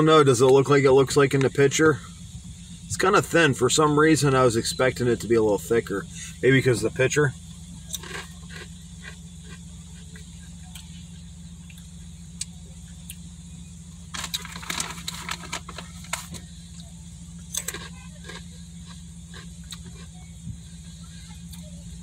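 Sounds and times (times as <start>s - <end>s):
low hum inside car: 0.0s - 22.0s
crunchy chewing of snacks: 7.6s - 13.4s, 14.0s - 22.0s.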